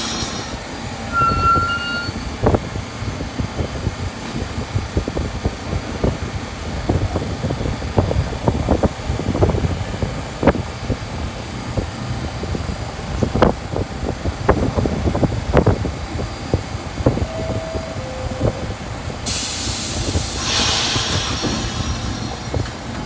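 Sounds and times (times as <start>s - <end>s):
short high brake squeal: 0.0s - 2.4s
subway car equipment running: 0.0s - 23.0s.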